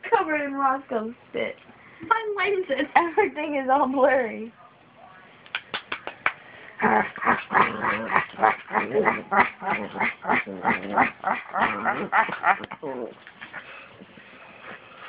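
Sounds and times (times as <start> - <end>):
small dog vocalizing: 6.8 - 13.7.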